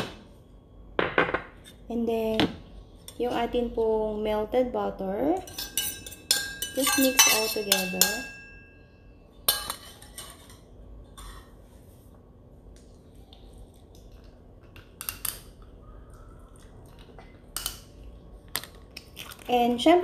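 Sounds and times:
utensil clinking against bowl: 0:05.4 - 0:10.6.

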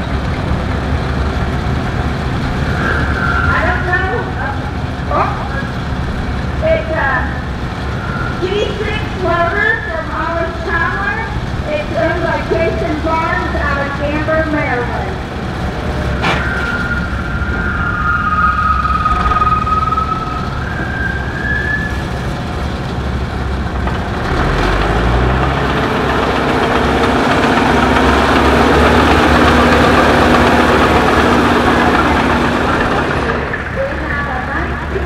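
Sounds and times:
engine revving: 0:00.0 - 0:35.0
tractor engines running: 0:00.0 - 0:35.0
high wavering whistle-like tone: 0:02.5 - 0:04.8, 0:07.8 - 0:10.0, 0:15.4 - 0:22.5.

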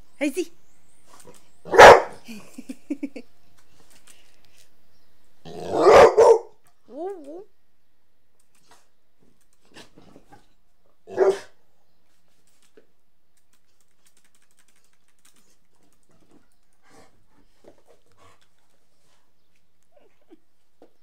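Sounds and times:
dog barking: 0:01.7 - 0:02.2, 0:05.7 - 0:06.6, 0:11.1 - 0:11.6.

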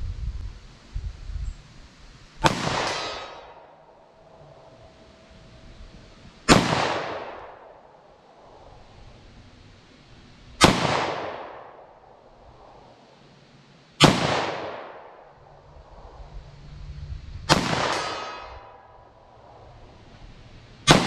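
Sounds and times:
pistol shots with echo: 0:02.4 - 0:03.9, 0:06.5 - 0:07.9, 0:10.6 - 0:11.9, 0:14.0 - 0:15.2, 0:17.5 - 0:18.9.

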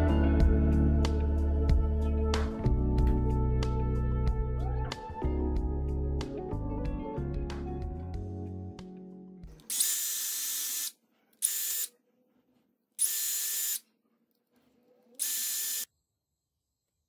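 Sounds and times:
background music: 0:00.0 - 0:09.7
small electric motor running: 0:09.7 - 0:11.9, 0:13.0 - 0:13.8, 0:15.2 - 0:15.9.

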